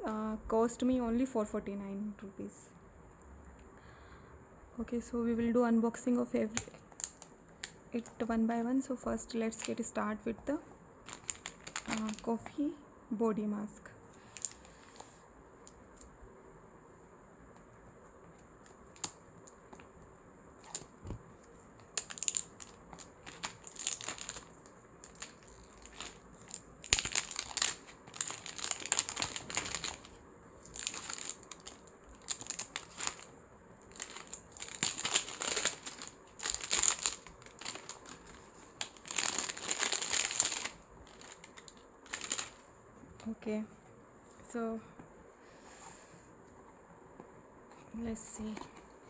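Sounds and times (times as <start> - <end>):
plastic wrapping crinkling: 6.5 - 8.2, 9.5 - 10.0, 11.0 - 12.5, 14.2 - 15.0, 20.6 - 42.7.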